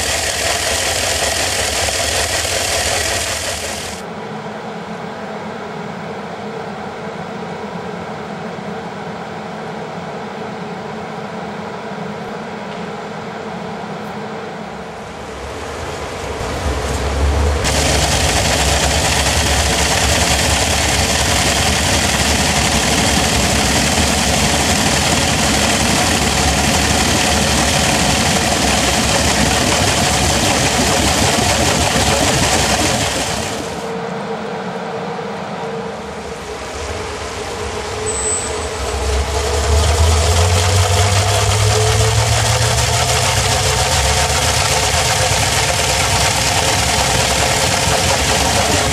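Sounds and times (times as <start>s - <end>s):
spinning metal shaft whirring: 0.0s - 4.0s, 17.6s - 33.9s, 36.4s - 48.9s.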